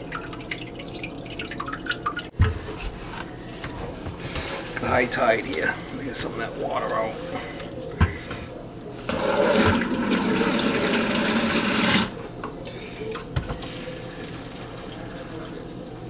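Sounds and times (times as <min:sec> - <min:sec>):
water gushing from sink: 0:00.0 - 0:02.3, 0:09.1 - 0:12.2, 0:13.9 - 0:16.0.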